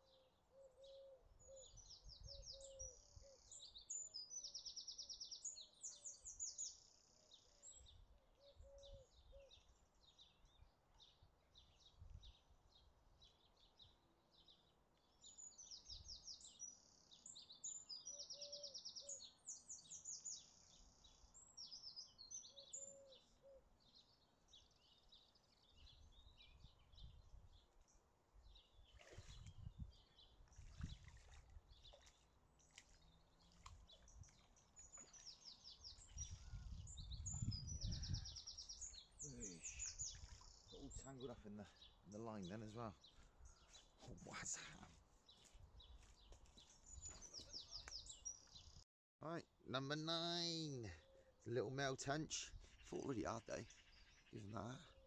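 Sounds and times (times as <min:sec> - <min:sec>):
songbirds trilling and chirping: 0:00.0 - 0:55.0
wind rumbling on microphone: 0:26.0 - 0:27.6, 0:29.0 - 0:31.9, 0:35.8 - 0:39.0.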